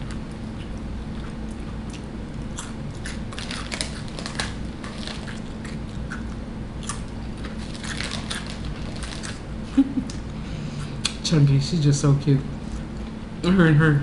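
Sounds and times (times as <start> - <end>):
crunchy chips being chewed: 0.0 - 10.2
chip bag crinkling: 3.1 - 5.7, 7.3 - 9.4.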